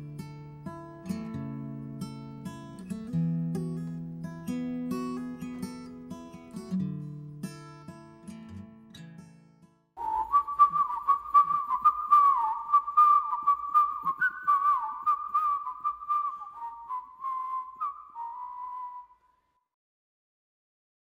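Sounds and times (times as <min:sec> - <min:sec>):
person whistling a tune: 0:10.0 - 0:19.5.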